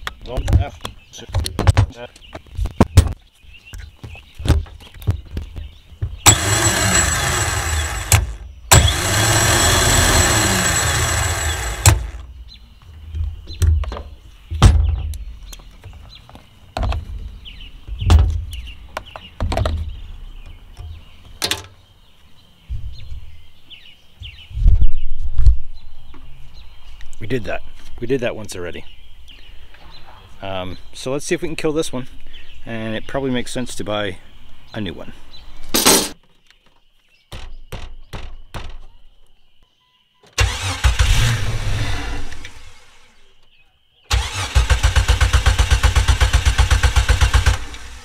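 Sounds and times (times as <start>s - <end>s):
clicks and knocks of handling: 0.0s - 6.2s
starter motor whining: 6.2s - 12.3s, 40.4s - 43.2s, 44.1s - 48.0s.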